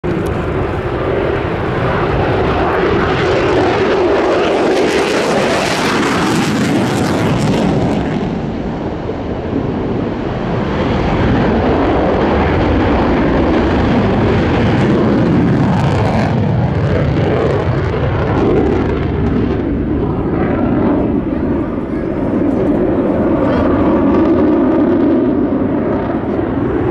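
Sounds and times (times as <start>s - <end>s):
jet engine in afterburner: 0.0s - 26.9s.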